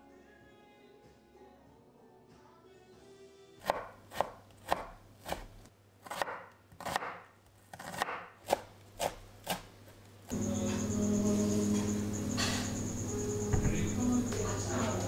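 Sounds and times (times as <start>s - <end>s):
knife chopping on wooden board: 3.6s - 9.7s.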